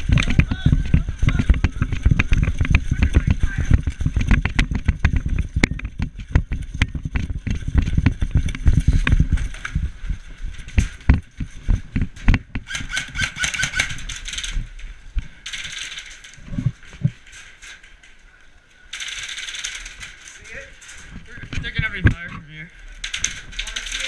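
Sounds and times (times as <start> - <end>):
running footsteps on gravel: 0.0 - 12.5
high rattling: 12.6 - 18.1, 18.8 - 24.0.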